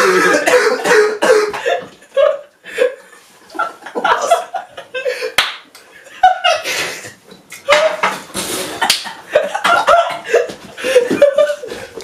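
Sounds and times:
men coughing and gasping: 0.0 - 3.0, 8.8 - 12.0
men laughing: 0.0 - 7.1, 8.7 - 12.0
hand clap: 5.4 - 5.9, 8.8 - 9.8.

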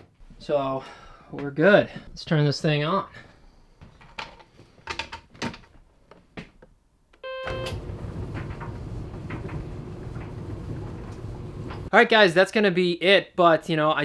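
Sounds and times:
dryer beep: 7.2 - 11.9
dryer drum motor rumbling: 7.5 - 11.9.

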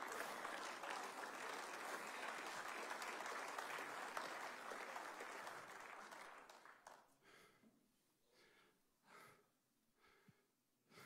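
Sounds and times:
congregation applauding: 0.0 - 7.1.

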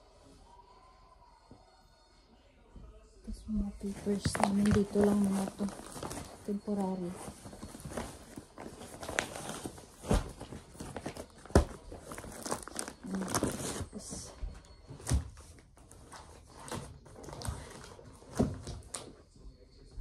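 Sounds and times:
papers and plastic sleeves rustling: 3.3 - 19.2.

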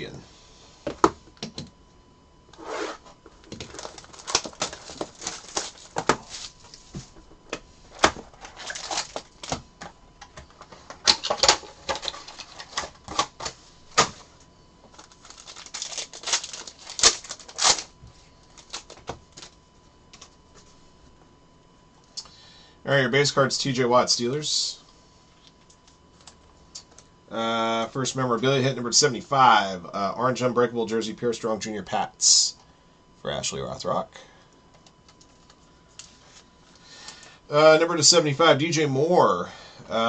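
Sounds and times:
foil wrapper crinkling and tearing: 3.4 - 6.6, 8.3 - 9.6, 14.8 - 19.6.

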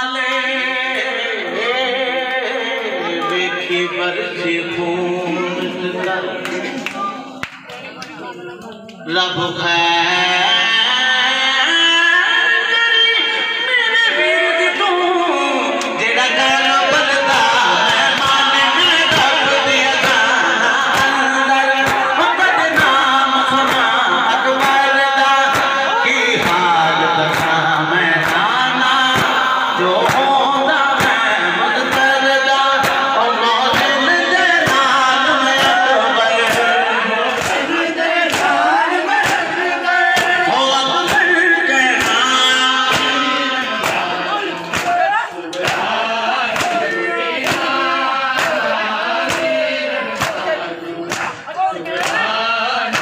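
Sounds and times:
crowd of men chanting: 0.0 - 53.0
man reciting a lament over loudspeaker: 0.0 - 53.0
hand slaps on bare chests: 25.5 - 25.8, 30.0 - 30.3, 32.8 - 33.1, 37.3 - 37.7, 38.3 - 38.6, 39.2 - 39.6, 44.6 - 45.9, 46.5 - 46.8, 47.4 - 48.6, 49.2 - 49.6, 50.2 - 50.4, 51.1 - 51.4, 52.0 - 52.2.

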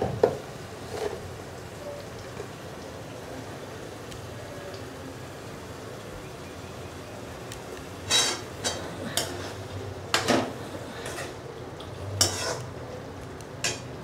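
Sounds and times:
spatula scraping metal pan: 8.1 - 9.6, 12.2 - 12.7.

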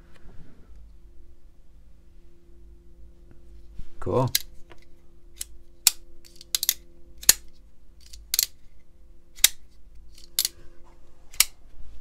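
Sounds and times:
faint steady hum: 0.0 - 12.0
folding knife clicking open and shut: 5.4 - 8.6, 9.4 - 10.6, 11.3 - 11.6.

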